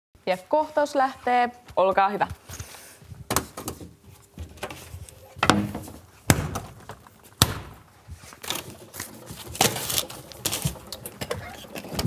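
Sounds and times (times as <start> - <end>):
objects set down with bangs: 5.4 - 7.8.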